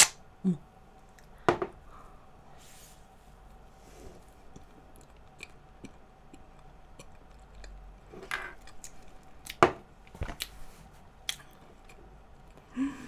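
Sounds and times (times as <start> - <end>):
soft mouth noises eating: 4.1 - 9.6.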